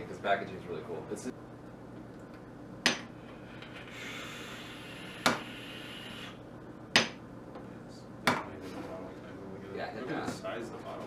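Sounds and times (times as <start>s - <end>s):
vape hiss: 3.7s - 6.4s.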